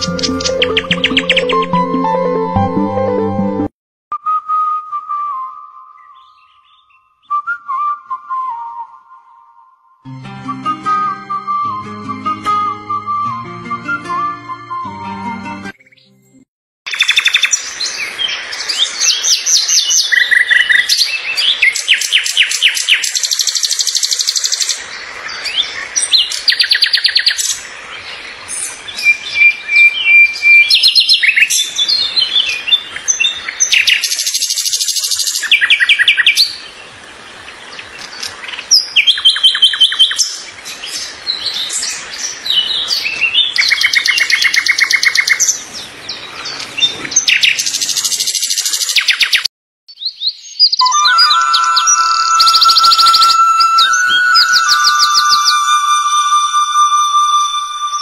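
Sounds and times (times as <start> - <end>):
songbirds trilling and chirping: 16.9 - 51.7
bird whistle: 42.9 - 45.4, 50.7 - 58.0.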